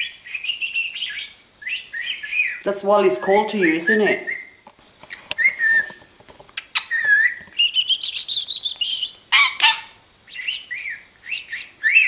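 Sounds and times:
budgerigar chattering: 0:00.0 - 0:04.6, 0:06.6 - 0:12.0
budgerigar harsh call: 0:06.6 - 0:12.0.

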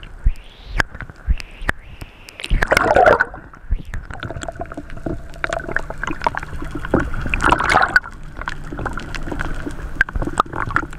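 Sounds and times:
rush of water: 0:02.2 - 0:10.9
seawater sloshing and gurgling: 0:02.4 - 0:10.9.

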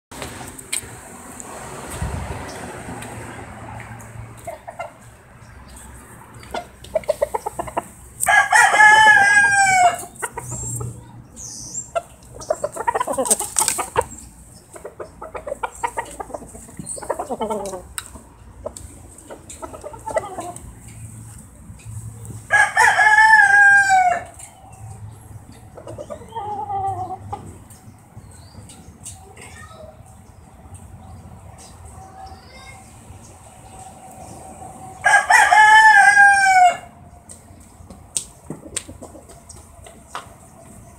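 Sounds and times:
chicken clucking: 0:04.0 - 0:21.2, 0:25.5 - 0:29.2, 0:37.6 - 0:40.9
rooster crowing: 0:08.2 - 0:10.1, 0:22.5 - 0:24.3, 0:35.0 - 0:36.9.

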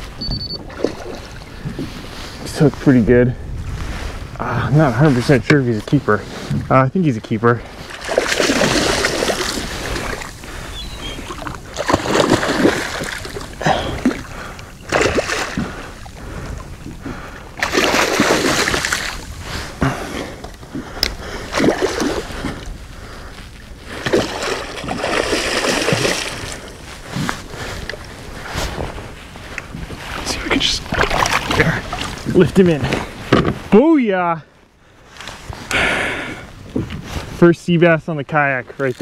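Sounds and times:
fish thrashing and splashing water: 0:00.6 - 0:01.9, 0:07.8 - 0:22.7, 0:23.9 - 0:26.8, 0:30.8 - 0:32.2.

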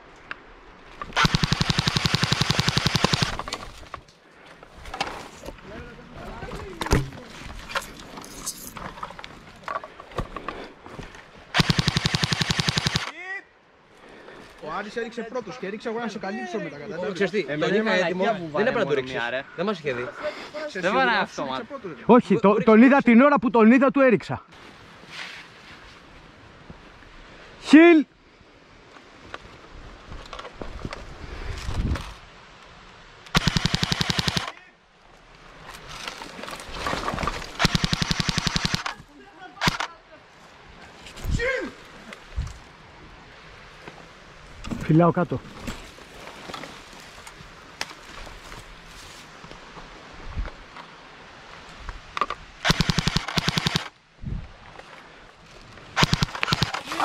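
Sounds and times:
brush rustling and crackling: 0:00.8 - 0:11.6, 0:24.6 - 0:27.1, 0:33.4 - 0:52.5, 0:53.2 - 0:57.0
airsoft rifle full-auto burst: 0:01.2 - 0:03.5, 0:11.5 - 0:13.1, 0:33.3 - 0:34.5, 0:37.6 - 0:39.0, 0:39.6 - 0:39.9, 0:52.6 - 0:53.9, 0:56.0 - 0:57.0.

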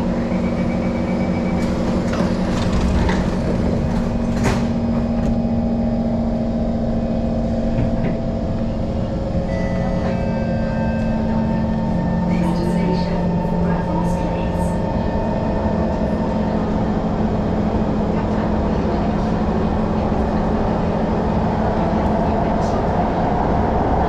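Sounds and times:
train whining tones: 0:00.0 - 0:18.4
train electrical hum: 0:00.0 - 0:24.0
door-closing warning beeps: 0:00.3 - 0:03.4
train doors sliding shut: 0:01.6 - 0:05.4.

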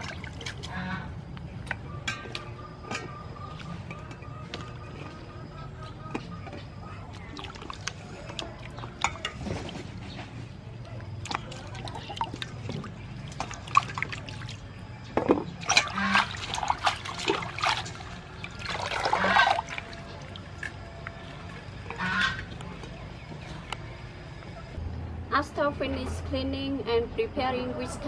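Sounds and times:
water sloshing and dripping: 0:00.0 - 0:02.4, 0:06.5 - 0:23.0
vegetables washed in bowl of water: 0:07.0 - 0:10.0, 0:11.0 - 0:14.8, 0:15.5 - 0:22.5.

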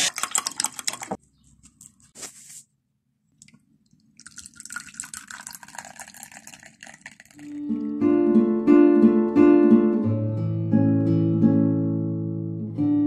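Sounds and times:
drink pouring into a mug: 0:00.0 - 0:01.2, 0:04.1 - 0:07.6.

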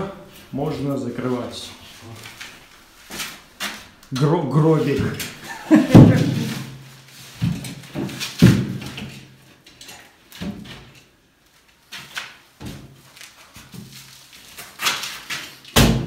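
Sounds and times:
drywall knocking and scraping: 0:04.5 - 0:09.5.

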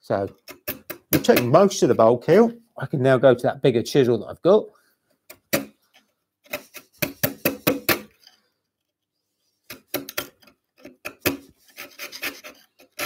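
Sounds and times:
chisel cutting strokes on wood: 0:10.8 - 0:13.0.

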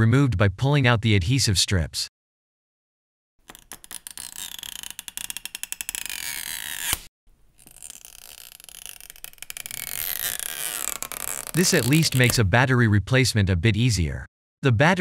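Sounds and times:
adhesive strip crackling: 0:03.4 - 0:12.4
adhesive strip snapping: 0:03.4 - 0:12.4.

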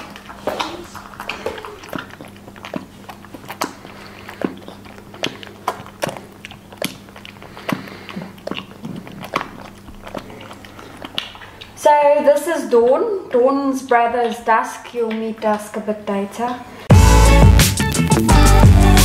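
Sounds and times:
animal sucking from bottle: 0:00.3 - 0:11.8.

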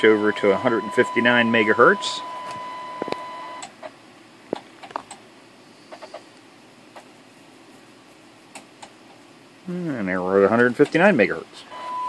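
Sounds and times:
steady test tone: 0:00.0 - 0:03.6.

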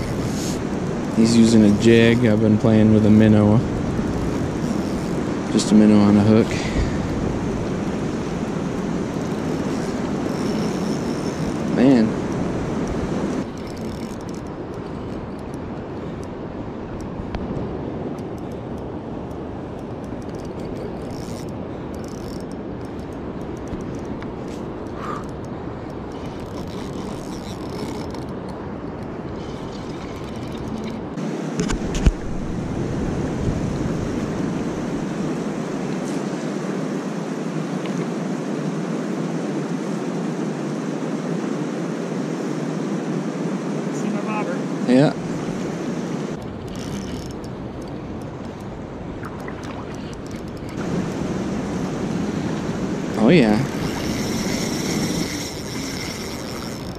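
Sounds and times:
fishing reel gears whirring: 0:00.0 - 0:17.2, 0:18.1 - 0:31.2, 0:46.4 - 0:56.9
wind: 0:00.0 - 0:56.9
river water rushing: 0:32.3 - 0:56.9.

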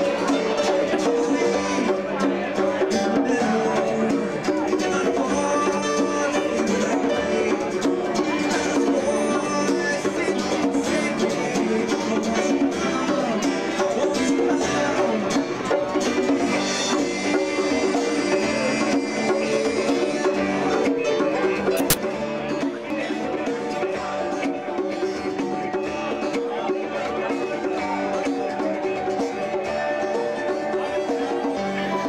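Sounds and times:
live band music: 0:00.0 - 0:22.7
sharp click: 0:21.8 - 0:22.0.

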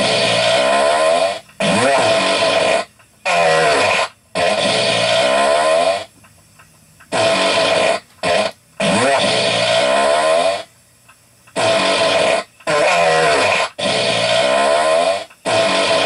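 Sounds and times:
farts: 0:00.0 - 0:06.1, 0:07.1 - 0:10.7, 0:11.6 - 0:16.0.

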